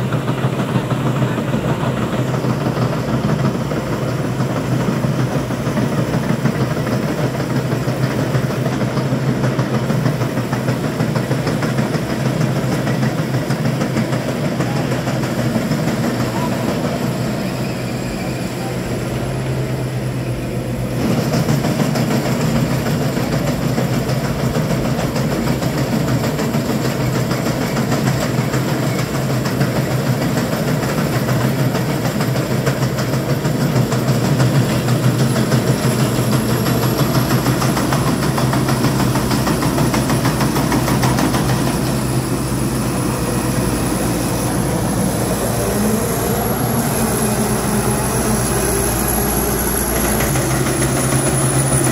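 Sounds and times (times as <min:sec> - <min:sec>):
combine harvester engine drone: 0:00.0 - 0:51.9.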